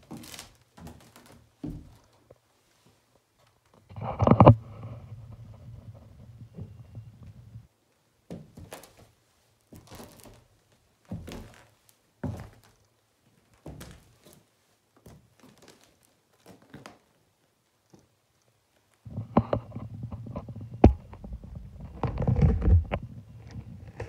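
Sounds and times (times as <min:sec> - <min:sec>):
heeled boot footsteps on gritty floor: 0:11.0 - 0:12.8.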